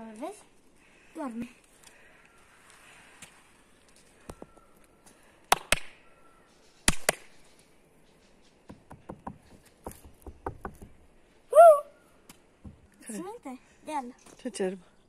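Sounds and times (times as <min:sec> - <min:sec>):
quiet taps: 0:08.7 - 0:11.0.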